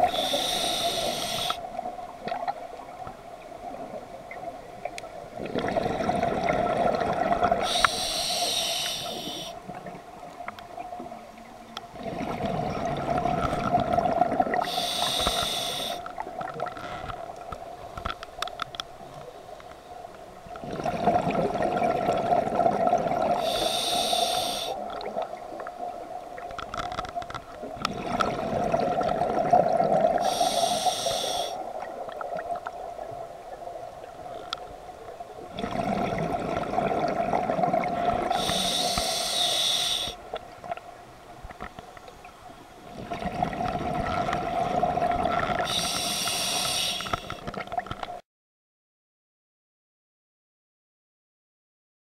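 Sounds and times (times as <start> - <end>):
diver inhaling through regulator: 0.0 - 1.6, 7.5 - 9.6, 14.6 - 16.1, 23.3 - 24.8, 30.2 - 31.6, 38.2 - 40.2, 45.6 - 47.5
exhaled bubbles rushing: 5.3 - 7.7, 11.9 - 14.7, 20.6 - 23.4, 27.8 - 30.2, 35.4 - 38.6, 42.9 - 45.8.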